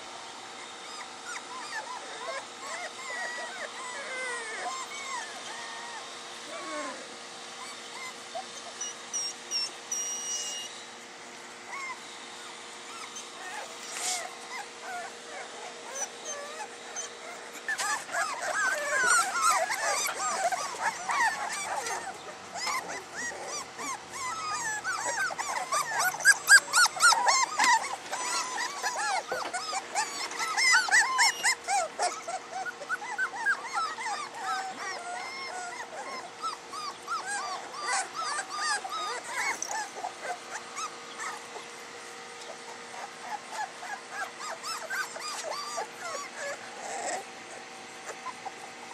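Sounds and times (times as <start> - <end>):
puppies whimpering and yipping: 0.0 - 48.9.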